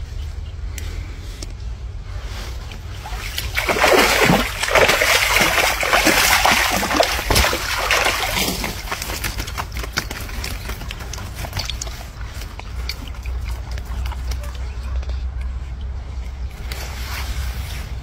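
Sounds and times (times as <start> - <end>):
water splashing and sloshing: 2.2 - 15.2
water dripping: 3.1 - 14.4.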